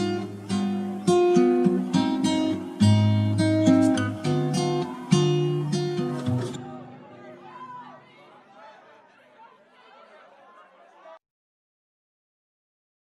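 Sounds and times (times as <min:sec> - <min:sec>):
acoustic guitar strumming: 0:00.0 - 0:07.5.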